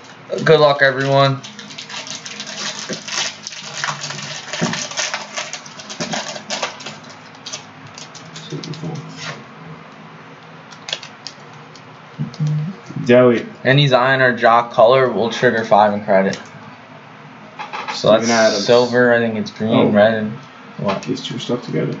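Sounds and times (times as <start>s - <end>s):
foil wrapper crinkling and tearing: 1.0s - 9.4s, 10.7s - 11.4s
handling of cards: 10.7s - 11.9s.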